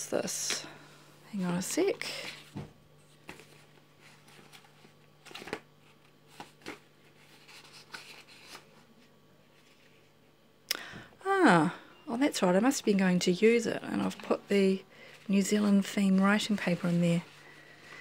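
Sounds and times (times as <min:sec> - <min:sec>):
faint low hum: 0:00.0 - 0:18.0
paper rustling and tapping: 0:02.5 - 0:06.8.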